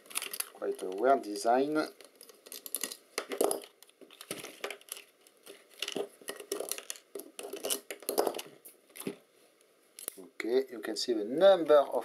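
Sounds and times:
plastic clicks rattles and scrapes: 0.0 - 1.1, 2.0 - 9.2.

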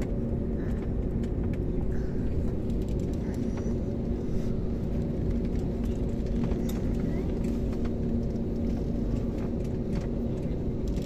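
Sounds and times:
jet engines rumbling: 0.0 - 11.0
cabin clicks and rattles: 5.0 - 11.0.

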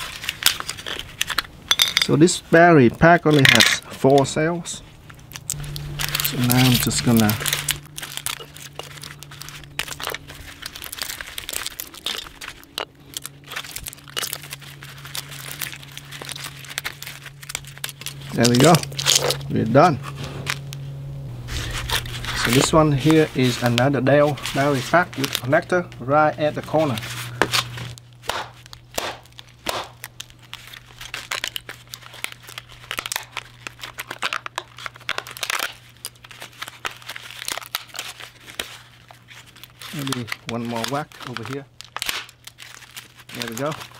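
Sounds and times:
plastic casing cracking and snapping: 0.0 - 2.2, 5.0 - 19.6, 27.5 - 43.9
plastic wrap crinkling: 0.0 - 43.9.

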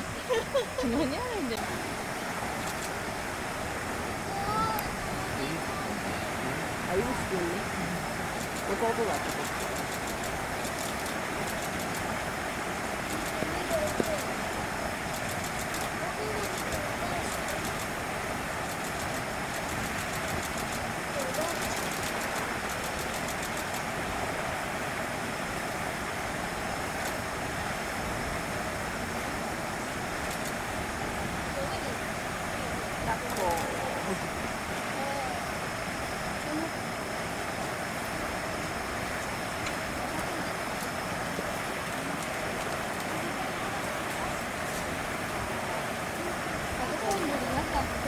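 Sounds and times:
distant traffic hiss and rumble: 0.0 - 48.0
faint high ticks: 2.6 - 3.0, 8.3 - 12.1
murmur of distant voices: 3.4 - 10.9, 12.9 - 19.1, 31.2 - 38.0, 39.0 - 48.0.

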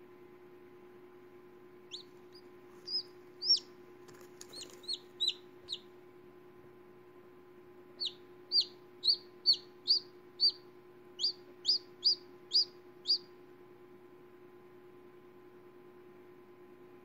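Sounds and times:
faint steady hum: 0.0 - 17.0
chick peeping: 1.9 - 5.9, 8.0 - 13.4.

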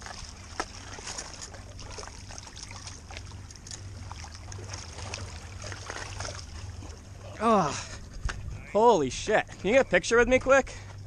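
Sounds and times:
water splashing against rocks: 0.0 - 7.0
low steady rumble: 0.0 - 11.0.

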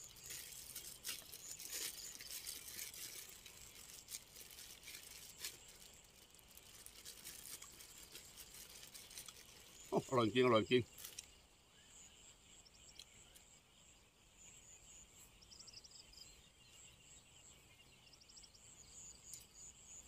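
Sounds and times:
plastic bag crinkling: 0.0 - 10.0, 10.9 - 11.3.

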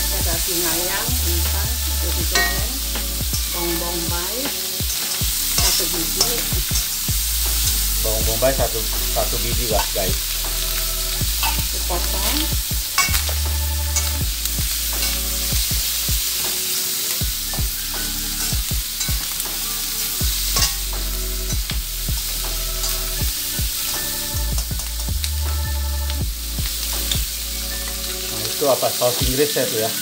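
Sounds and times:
food sizzling in a wok: 0.0 - 30.0
metal spatula scraping wok: 2.0 - 8.1, 9.2 - 25.1.

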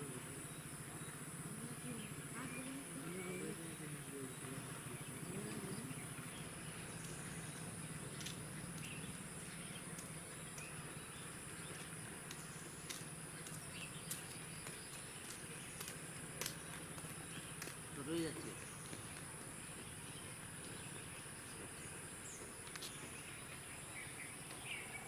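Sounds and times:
low steady hum: 0.0 - 25.0
faint sharp clicks: 11.8 - 17.8.

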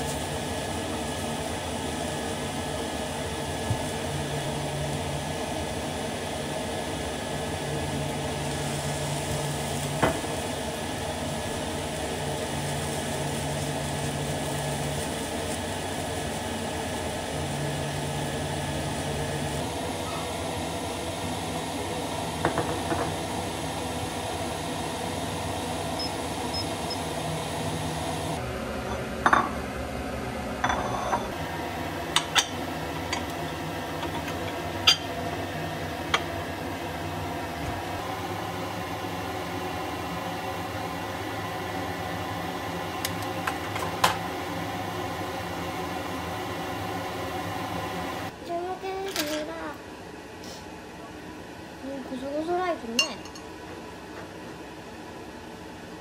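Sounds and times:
food sizzling in a pan: 3.6 - 28.4
utensils clinking on dishes: 53.0 - 53.5.

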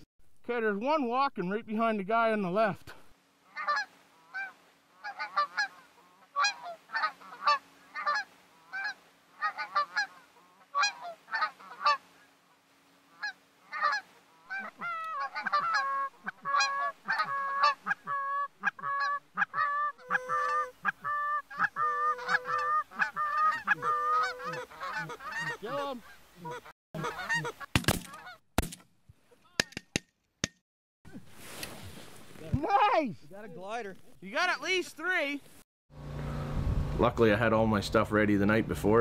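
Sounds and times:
geese honking: 3.5 - 28.4.

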